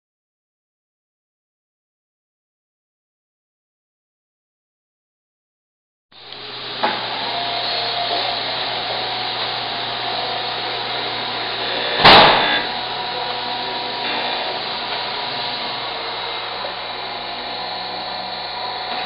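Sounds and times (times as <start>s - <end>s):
grinding wheel on metal: 6.2s - 19.0s
surface grinder humming and whining: 6.2s - 19.0s.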